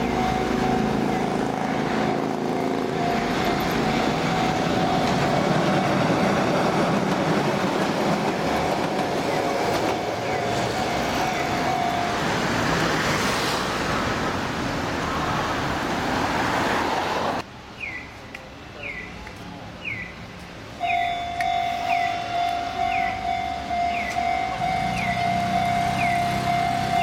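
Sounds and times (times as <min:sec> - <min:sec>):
crossing warning bell ringing: 0:00.0 - 0:06.5, 0:08.5 - 0:12.8, 0:20.8 - 0:27.0
train rumbling past: 0:00.0 - 0:17.4, 0:20.8 - 0:27.0
electronic crossing bell falling tone: 0:20.9 - 0:27.0.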